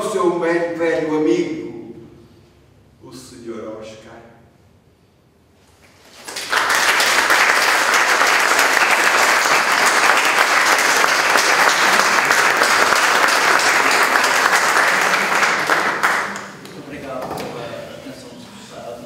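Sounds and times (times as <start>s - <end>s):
audience applauding: 6.1s - 16.8s.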